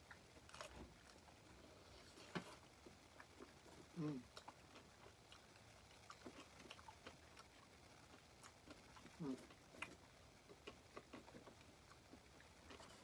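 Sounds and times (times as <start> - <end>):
dog eating with small clicks: 4.3 - 13.0.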